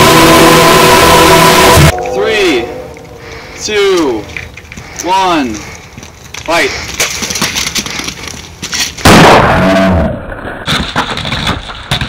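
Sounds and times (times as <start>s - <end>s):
loud distorted crash: 9.0s - 11.2s.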